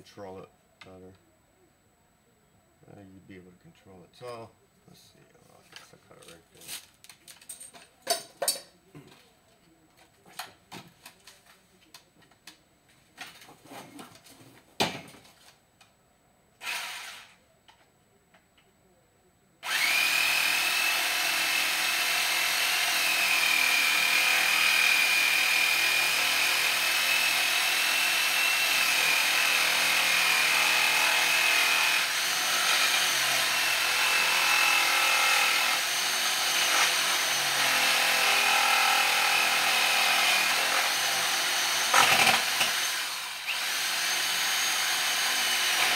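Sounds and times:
power tool whining: 16.6 - 17.4, 19.6 - 45.9.

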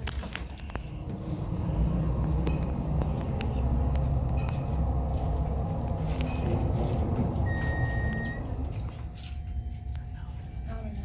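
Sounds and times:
elevator low rumble: 0.0 - 11.0
high electronic beep: 7.4 - 8.6.

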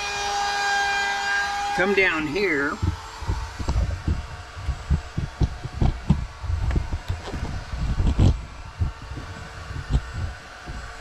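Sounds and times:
thumps and knocks of handling: 2.8 - 10.9.

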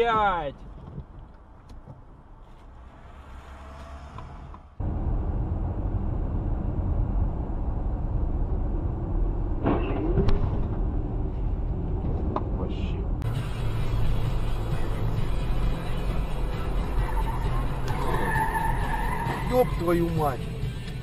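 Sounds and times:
car road and engine drone: 0.0 - 21.0.

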